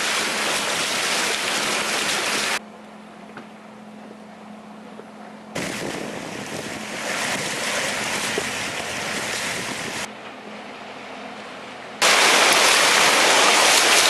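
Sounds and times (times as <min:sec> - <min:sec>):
water rushing and splashing: 0:00.0 - 0:02.6, 0:05.6 - 0:14.0
low steady hum: 0:02.6 - 0:12.2.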